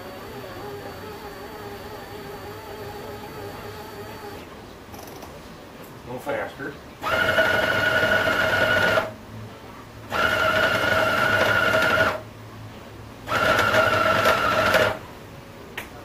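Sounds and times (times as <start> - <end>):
food processor motor whining: 7.1 - 9.1, 13.3 - 15.0.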